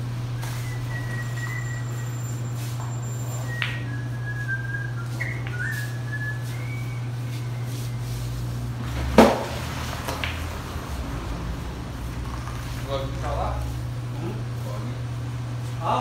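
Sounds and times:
steady low hum: 0.0 - 16.0
person whistling: 0.4 - 2.4, 3.4 - 8.1.

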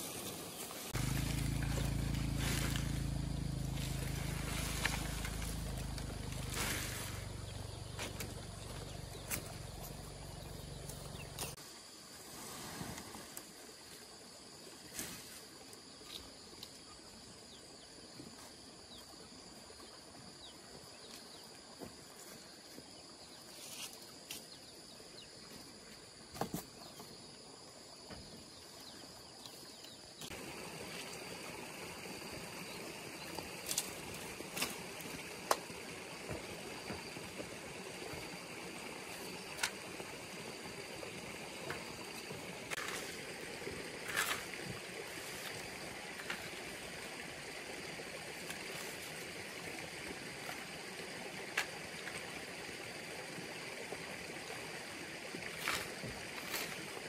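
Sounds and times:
dry leaves rustling: 0.0 - 11.6
high insect drone: 0.1 - 12.2, 13.7 - 57.0
footsteps: 1.0 - 7.3, 7.9 - 10.0.

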